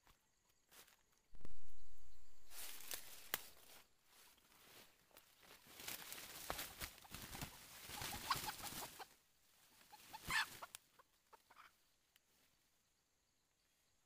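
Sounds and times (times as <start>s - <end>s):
undergrowth rustling: 0.0s - 12.7s
chicken squawking and clucking: 6.7s - 11.8s.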